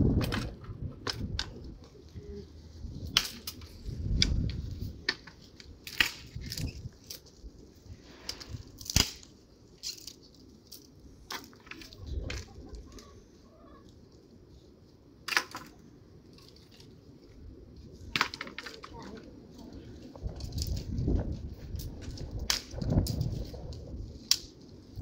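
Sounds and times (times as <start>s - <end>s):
dry sticks snapping: 3.0s - 7.4s, 8.2s - 13.1s, 20.3s - 25.0s.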